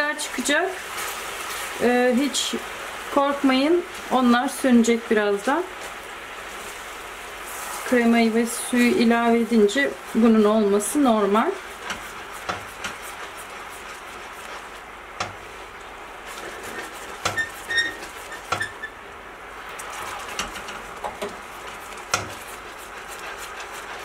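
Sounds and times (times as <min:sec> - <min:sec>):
caramel bubbling and foaming: 0:00.4 - 0:24.0
spatula stirring sauce: 0:08.6 - 0:18.9, 0:19.6 - 0:24.0
spatula knocking against pan: 0:11.9 - 0:13.0, 0:17.2 - 0:17.5, 0:22.1 - 0:22.4.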